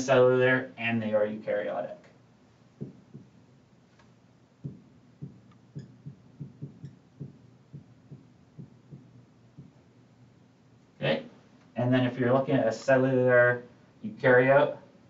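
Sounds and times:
marker tapping on whiteboard: 2.8s - 3.4s, 4.6s - 9.8s
marker tip ticks: 4.6s - 9.7s.

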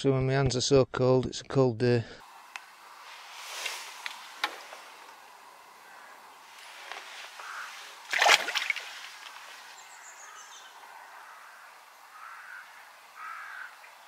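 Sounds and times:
fish splashing into water: 6.9s - 9.7s.

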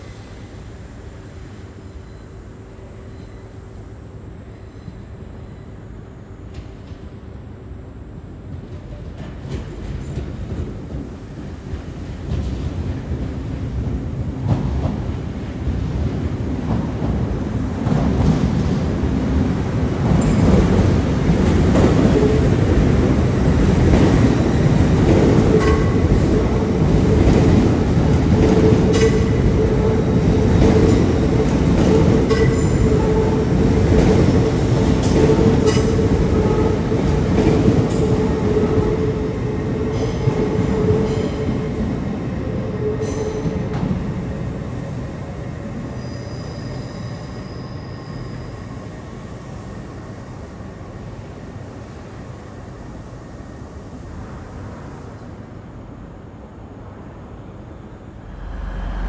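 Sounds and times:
train wheels rumbling on rail: 0.0s - 59.0s
high whine: 57.9s - 59.0s.

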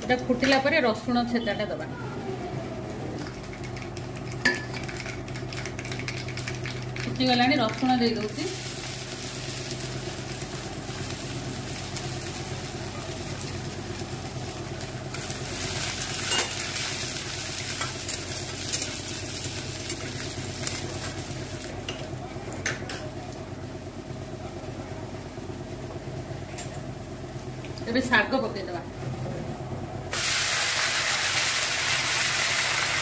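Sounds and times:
garlic sizzling in hot oil: 7.4s - 21.8s, 30.1s - 33.0s.

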